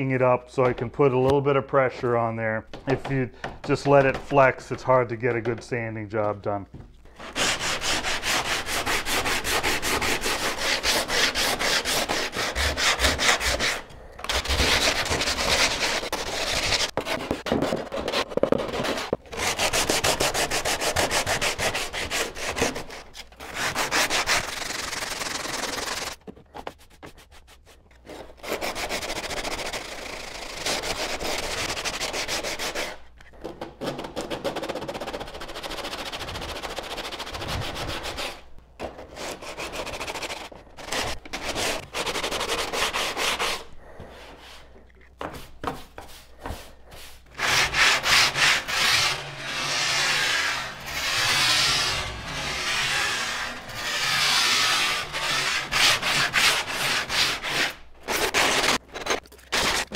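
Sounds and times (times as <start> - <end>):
sandpaper rasping on wood: 7.2 - 26.2, 26.8 - 33.0, 34.7 - 38.4, 39.1 - 44.7, 45.3 - 58.8.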